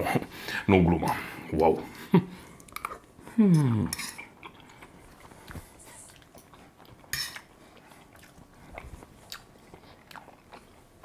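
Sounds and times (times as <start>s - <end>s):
fork scraping a metal pan: 7.2s - 7.4s.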